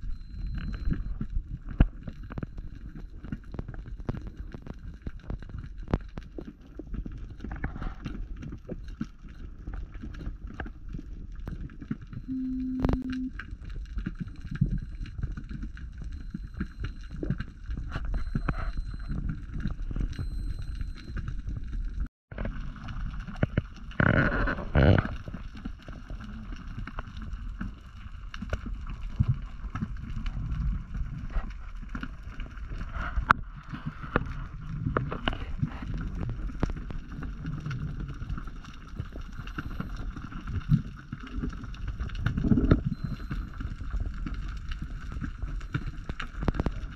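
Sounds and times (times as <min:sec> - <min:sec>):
clicks and crackles: 0:00.0 - 0:46.9
underwater rumble of moving water: 0:00.0 - 0:46.9.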